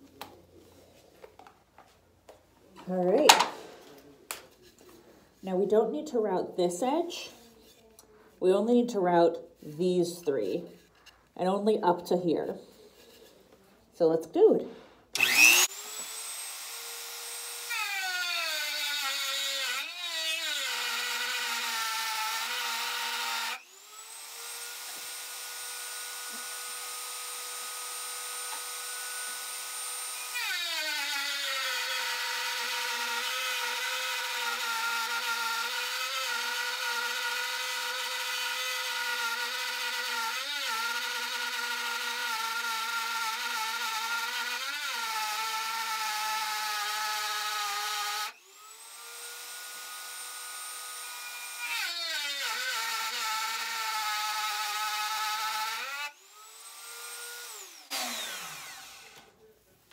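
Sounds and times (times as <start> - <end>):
rotary tool routing wood: 15.2 - 59.4.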